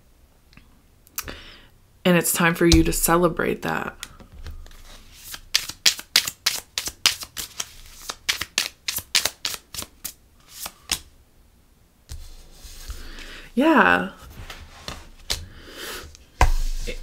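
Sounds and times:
cards being shuffled: 4.0 - 11.1, 14.3 - 15.5.

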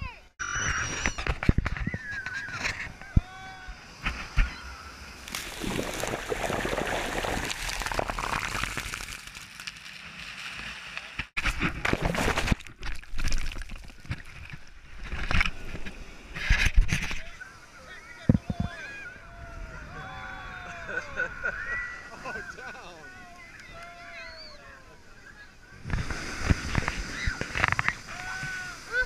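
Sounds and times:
ocean surf washing over sand: 3.0 - 11.3, 25.8 - 29.0.

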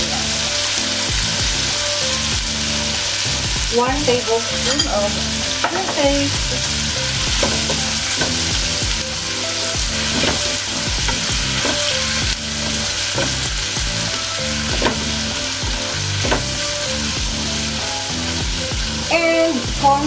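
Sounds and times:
food sizzling in hot oil: 0.0 - 20.0
spatula scraping and knocking pan: 7.2 - 9.0, 9.8 - 16.8.

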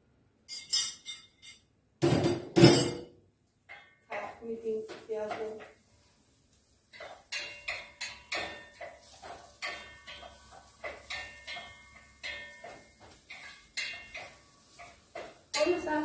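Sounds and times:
wooden spoon scraping a pot: 5.2 - 16.0.

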